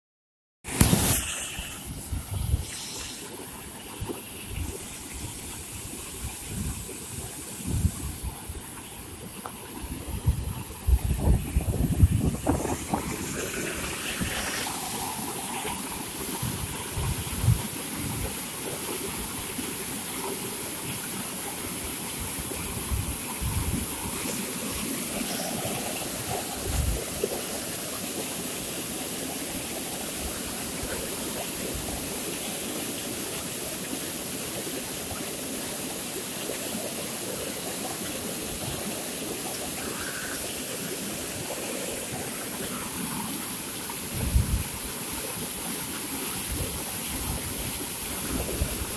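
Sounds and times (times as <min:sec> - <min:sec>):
water rushing into concrete channel: 0:00.7 - 0:48.9.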